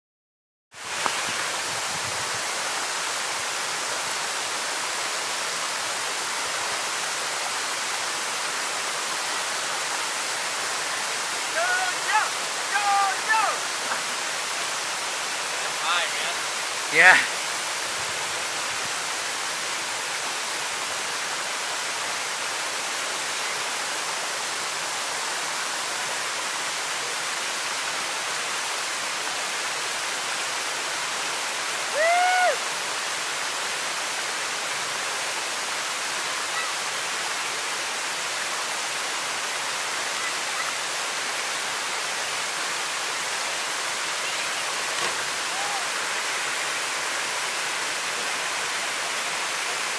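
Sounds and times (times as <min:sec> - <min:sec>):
waterfall rushing into pool: 0:00.7 - 0:49.9
person shouting: 0:11.5 - 0:13.6, 0:16.9 - 0:17.3, 0:31.9 - 0:32.6, 0:45.4 - 0:45.9.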